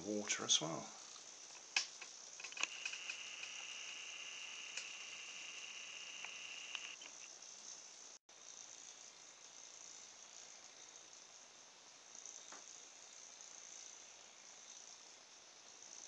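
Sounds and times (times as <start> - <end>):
faint motor buzz: 0.9 - 7.4
small motor high whine: 2.4 - 7.3.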